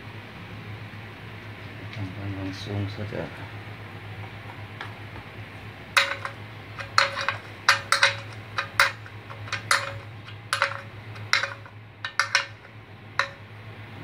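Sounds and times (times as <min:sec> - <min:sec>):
spanner clinking on drain plug: 0:06.0 - 0:13.5.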